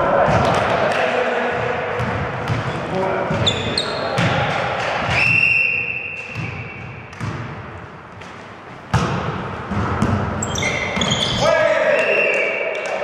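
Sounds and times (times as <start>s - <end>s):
volleyball thumping: 0.1s - 11.2s
referee's whistle: 5.1s - 6.8s, 10.5s - 12.7s.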